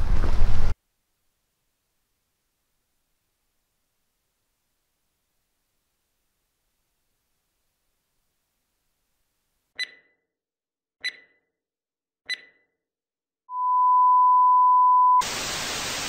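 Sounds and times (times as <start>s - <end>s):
short electronic pips: 9.8s - 10.2s, 11.0s - 11.4s, 12.3s - 12.7s
steady electronic beep: 9.8s - 10.2s, 11.0s - 11.4s, 12.3s - 12.6s, 13.5s - 15.2s
static hiss: 15.2s - 16.0s.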